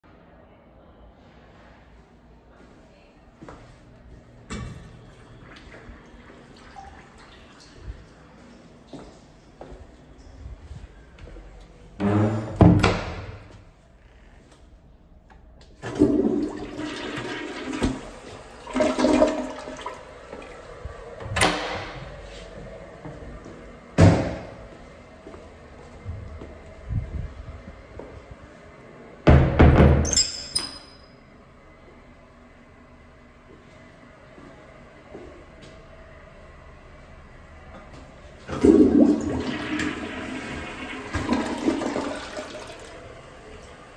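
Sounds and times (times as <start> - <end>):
toilet flushing: 4.8 - 8.2, 15.8 - 22.4, 38.4 - 43.9.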